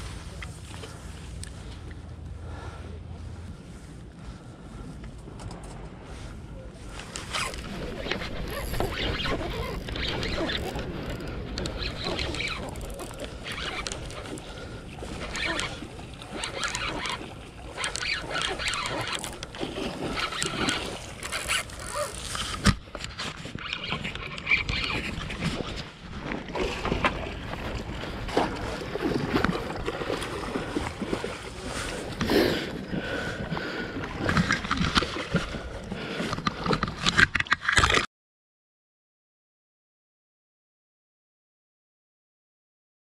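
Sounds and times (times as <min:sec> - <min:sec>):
water splashing: 0:07.2 - 0:22.8, 0:23.5 - 0:36.2.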